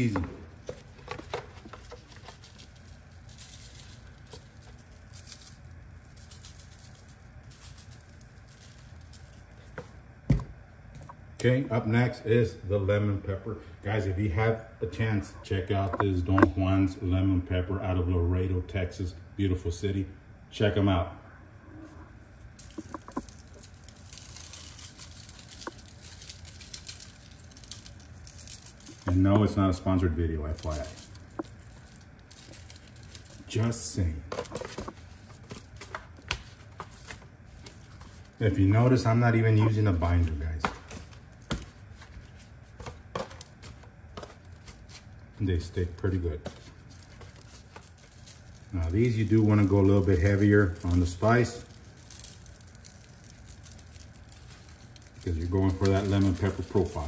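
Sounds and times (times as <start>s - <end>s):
salt shaker rattling: 0.0s - 10.0s, 22.5s - 57.0s
seasoning granules pattering: 0.0s - 11.1s, 22.4s - 57.0s.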